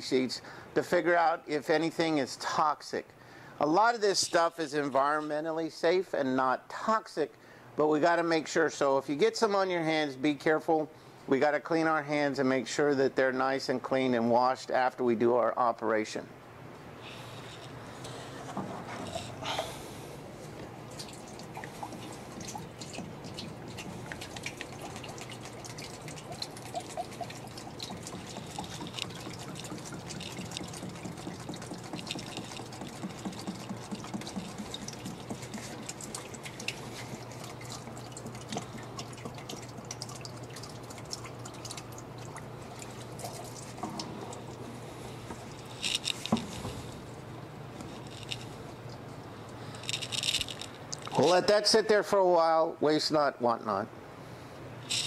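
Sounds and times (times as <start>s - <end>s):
low steady hum: 15.7s - 55.0s
fluid dripping into a tank: 20.6s - 51.2s.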